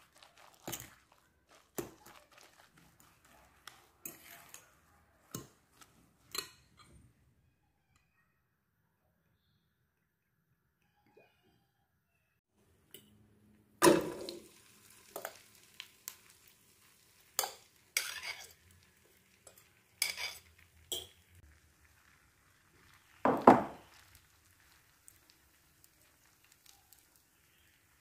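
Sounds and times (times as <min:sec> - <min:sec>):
fork scraping grated potato: 0:00.0 - 0:06.0, 0:18.0 - 0:18.6, 0:20.0 - 0:20.5
oil sizzling in frying pan: 0:13.8 - 0:28.0.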